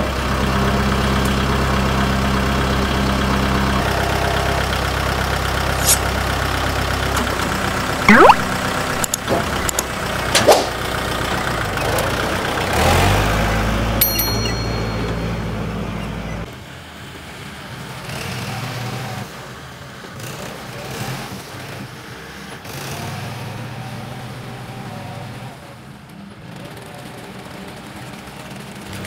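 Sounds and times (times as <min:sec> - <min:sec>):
tractor diesel engine running: 0:00.0 - 0:16.5.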